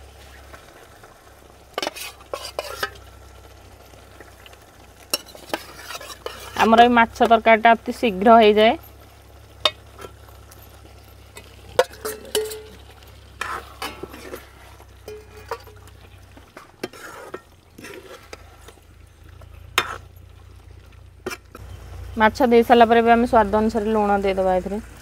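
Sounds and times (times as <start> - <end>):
curry sizzling: 0.0 - 25.0
ladle scraping metal pan: 1.8 - 3.1, 5.1 - 7.3, 9.6 - 20.2, 21.2 - 21.6.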